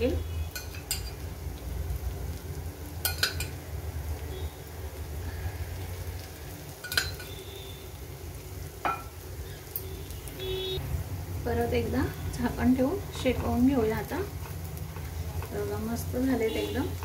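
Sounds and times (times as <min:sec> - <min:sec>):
oil sizzling in a pan: 0:00.0 - 0:17.0
spoon clinking against pan: 0:00.5 - 0:01.2, 0:03.0 - 0:03.6, 0:06.8 - 0:07.4.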